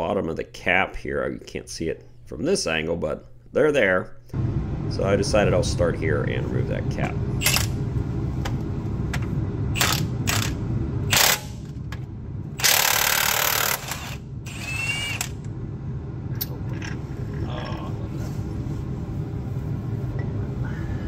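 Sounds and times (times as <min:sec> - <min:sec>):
steady low hum: 0:00.0 - 0:21.0
impact wrench bursts: 0:09.8 - 0:11.6, 0:12.6 - 0:15.4.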